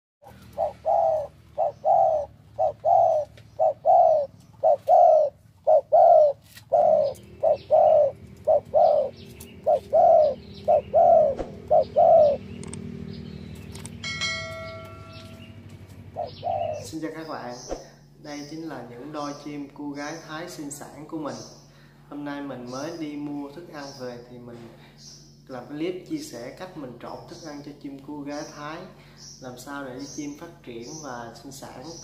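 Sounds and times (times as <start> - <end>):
doves cooing: 0.2 - 20.6
low steady hum: 0.2 - 32.0.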